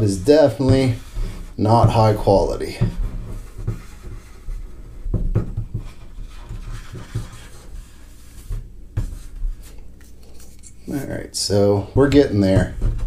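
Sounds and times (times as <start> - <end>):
welding iron rubbing on plastic: 0.0 - 9.8.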